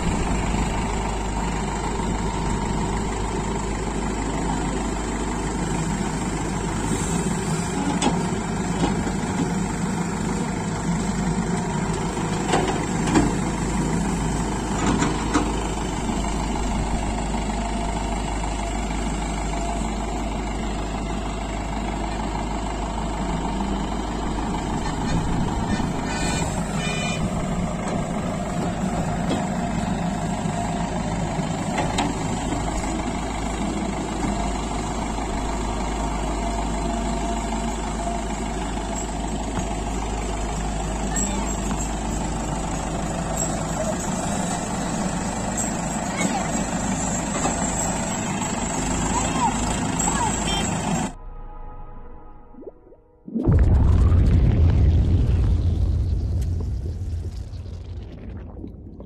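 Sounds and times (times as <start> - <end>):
diesel engine running: 0.0 - 51.9, 53.3 - 58.6
high-pitched tone: 49.1 - 53.7.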